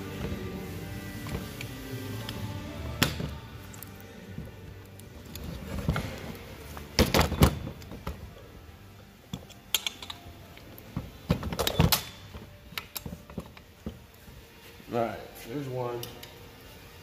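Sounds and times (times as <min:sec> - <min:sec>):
hand tools clicking and knocking: 0:09.3 - 0:14.0.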